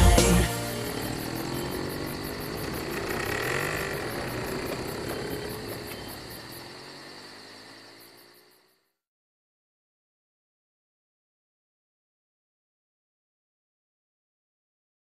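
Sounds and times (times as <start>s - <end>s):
quad bike engine: 0.0s - 8.7s
crickets chirping: 0.0s - 9.0s.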